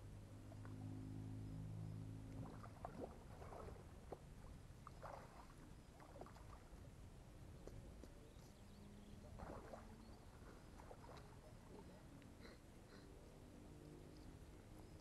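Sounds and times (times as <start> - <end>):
faint low hum: 0.0 - 15.0
water splashing and sloshing: 2.1 - 8.5, 9.2 - 12.1.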